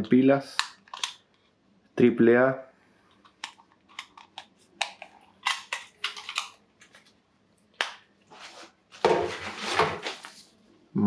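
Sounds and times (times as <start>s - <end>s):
plastic clicks: 0.5s - 1.5s, 3.1s - 7.1s.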